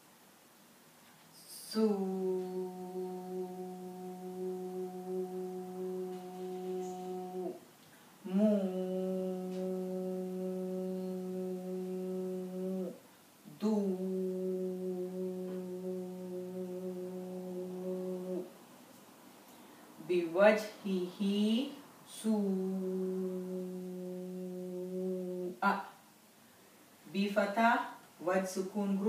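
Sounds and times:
woman holding long vowel: 0:01.4 - 0:18.6, 0:20.0 - 0:25.9.

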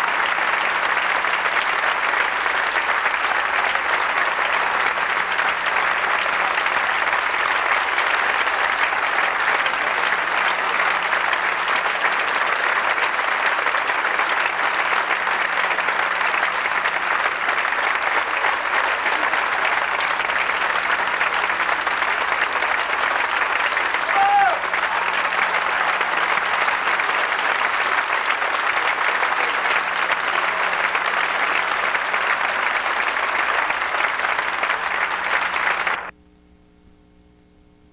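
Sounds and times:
audience applauding: 0:00.0 - 0:36.1.

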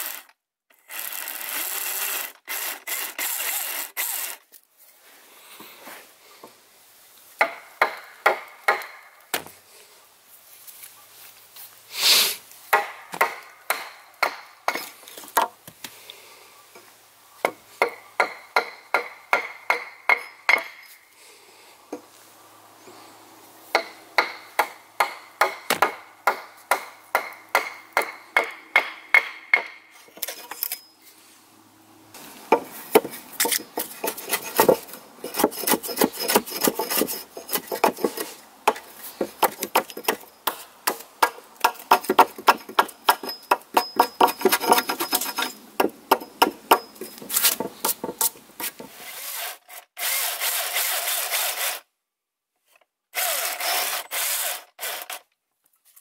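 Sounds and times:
chainsaw cutting into log: 0:00.0 - 0:04.5, 0:33.0 - 0:38.3, 0:48.9 - 0:51.9, 0:53.2 - 0:55.3
wood shaving: 0:00.0 - 0:04.6, 0:32.5 - 0:51.8, 0:53.2 - 0:55.3
hand axe chopping wood: 0:07.4 - 0:09.5, 0:12.7 - 0:15.5, 0:23.8 - 0:29.8, 0:32.5 - 0:48.9.

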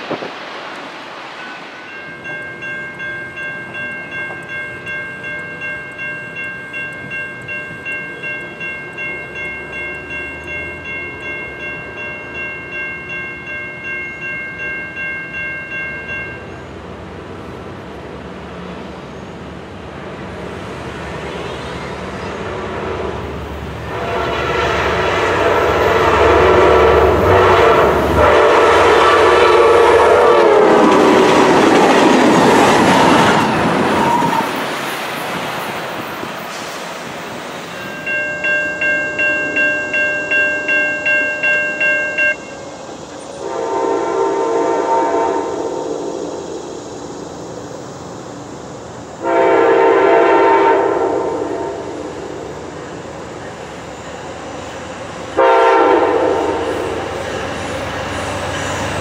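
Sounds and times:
train rushing by: 0:00.0 - 0:59.0
railroad crossing bell ringing: 0:01.3 - 0:17.8, 0:23.8 - 0:33.2, 0:35.6 - 0:44.2, 0:55.4 - 0:59.0
train horn blowing: 0:21.5 - 0:31.5, 0:43.4 - 0:46.5, 0:49.2 - 0:52.3, 0:55.4 - 0:57.0.

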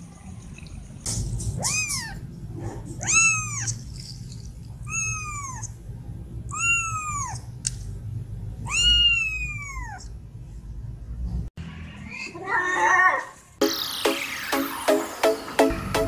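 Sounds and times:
kitten mewing: 0:01.6 - 0:03.9, 0:04.8 - 0:05.8, 0:06.5 - 0:07.5, 0:08.6 - 0:10.1.

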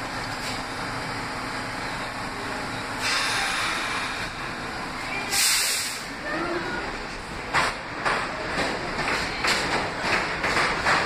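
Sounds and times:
subway train equipment rumble: 0:00.0 - 0:11.0
air brakes hissing: 0:02.9 - 0:04.4, 0:05.3 - 0:06.2.

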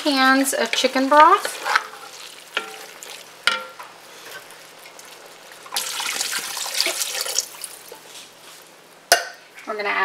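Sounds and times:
liquid pouring into a pot: 0:04.5 - 0:07.9.

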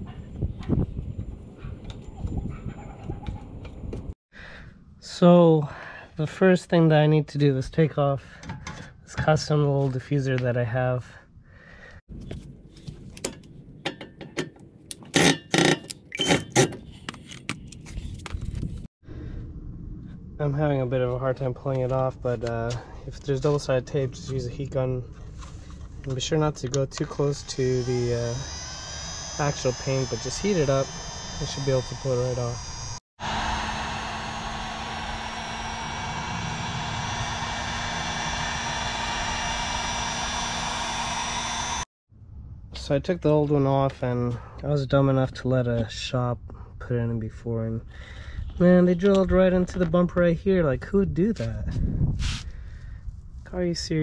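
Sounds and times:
heat gun blowing air: 0:27.4 - 0:41.9.

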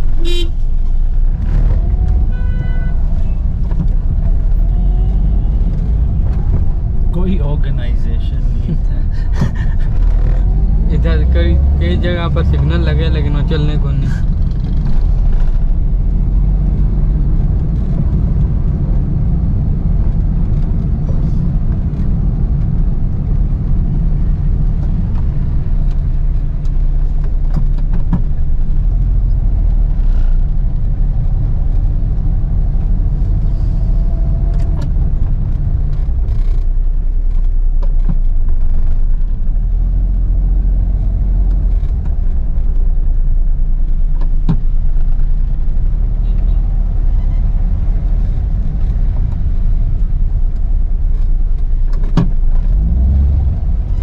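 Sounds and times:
car engine droning: 0:00.0 - 0:54.0.

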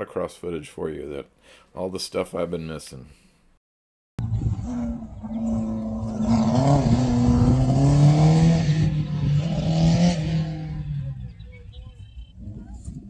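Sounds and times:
car engine revving hard: 0:04.2 - 0:11.4.

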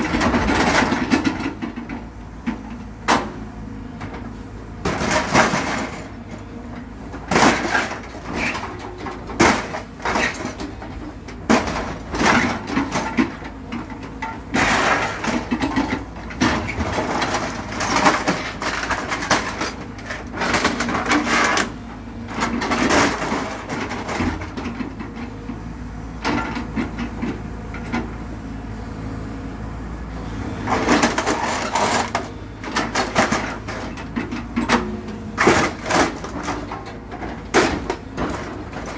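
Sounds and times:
excavator engine running: 0:00.0 - 0:38.9
scrap metal clattering and scraping: 0:04.9 - 0:06.3, 0:07.2 - 0:25.4, 0:30.7 - 0:38.9.

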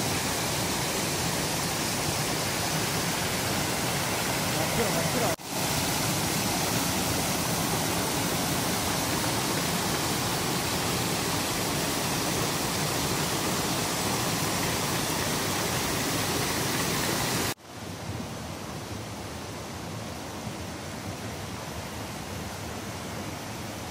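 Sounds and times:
rocky stream flowing: 0:00.0 - 0:17.6
waterfall rushing: 0:00.0 - 0:17.6.

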